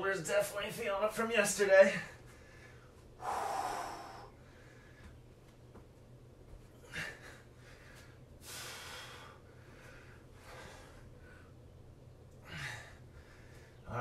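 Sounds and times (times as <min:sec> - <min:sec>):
faint low hum: 0:00.0 - 0:14.0
man breathing hard: 0:01.9 - 0:05.3, 0:06.7 - 0:11.6, 0:12.3 - 0:13.9.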